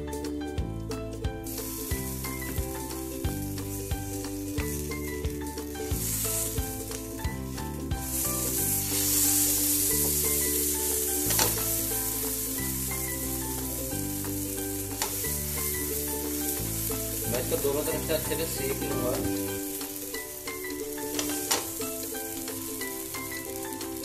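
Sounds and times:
soft background music: 0:00.0 - 0:24.0
butter sizzling on a griddle: 0:01.4 - 0:24.0.

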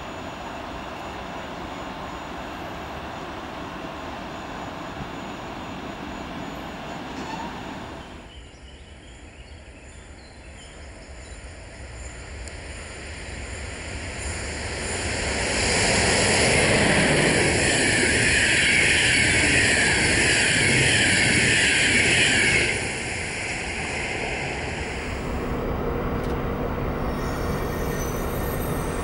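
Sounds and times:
train passing at speed: 0:00.0 - 0:29.0
steady background noise: 0:10.8 - 0:29.0.

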